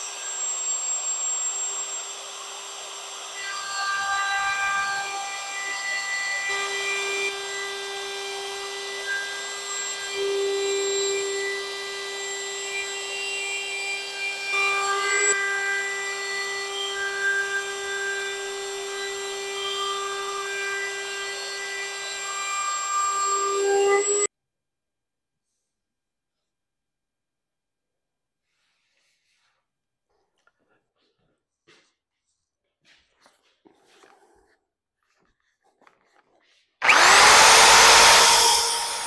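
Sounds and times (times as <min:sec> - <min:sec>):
woodworking power tool whining: 0:00.0 - 0:24.3, 0:36.8 - 0:39.0.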